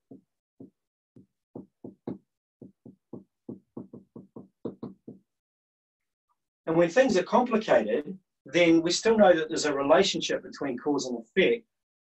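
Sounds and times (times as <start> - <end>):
marker tapping on whiteboard: 0.0 - 5.4.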